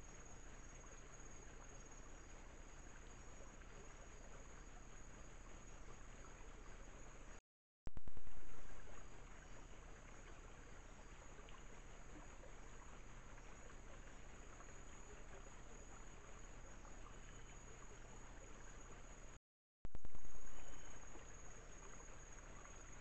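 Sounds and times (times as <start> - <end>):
trickling stream water: 0.0 - 23.0
high insect drone: 20.0 - 23.0.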